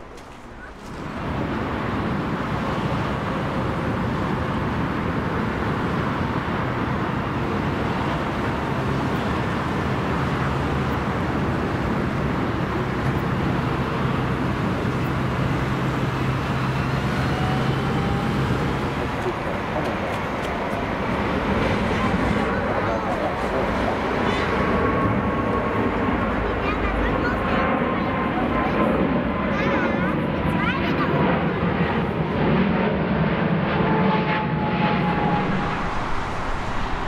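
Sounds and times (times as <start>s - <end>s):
jet engines running: 0.0s - 37.0s
faint rising tone: 34.3s - 37.0s.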